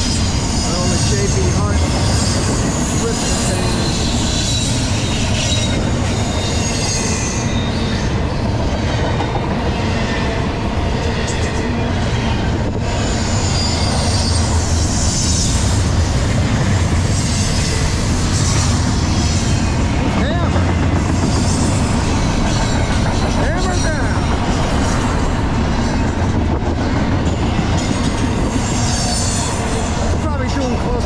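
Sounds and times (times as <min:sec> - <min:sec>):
high wheel squealing: 0:00.0 - 0:08.5, 0:09.8 - 0:20.4
steel wheels rumbling on rail: 0:00.0 - 0:31.0.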